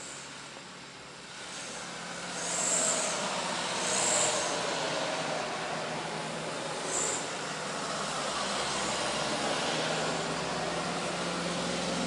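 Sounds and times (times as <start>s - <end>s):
short high hisses: 1.4s - 4.8s, 6.9s - 7.3s
heavy vehicle passing: 1.4s - 12.0s.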